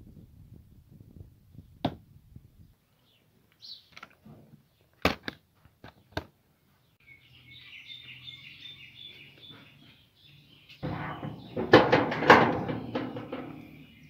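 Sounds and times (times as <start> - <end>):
faint bird chirping: 2.6 - 4.0, 6.0 - 11.7, 12.6 - 14.0.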